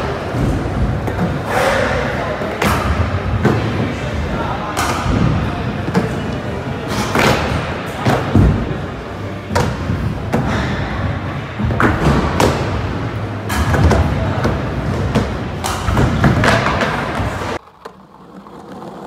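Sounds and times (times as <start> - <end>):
skateboard wheels rolling on wood: 16.2 - 19.0.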